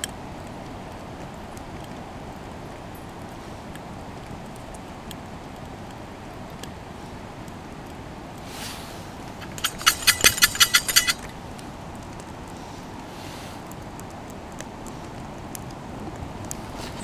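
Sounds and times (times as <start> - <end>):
wood fire crackling: 0.0 - 17.0
coffee beans rattling in metal pot: 9.4 - 11.3.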